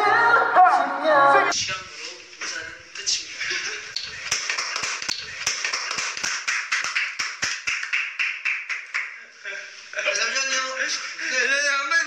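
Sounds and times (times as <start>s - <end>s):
group laughter: 3.2s - 5.7s, 9.2s - 11.4s
hands clapping and slapping table: 3.9s - 9.2s.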